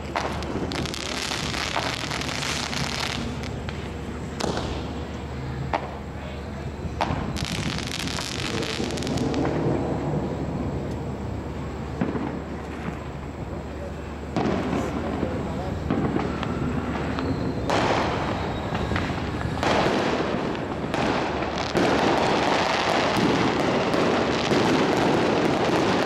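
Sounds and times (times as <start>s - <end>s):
firework cracks: 0.0s - 5.1s, 5.7s - 6.1s, 6.9s - 11.1s, 14.3s - 26.0s
firework hissing spray: 0.0s - 5.1s, 7.0s - 9.6s.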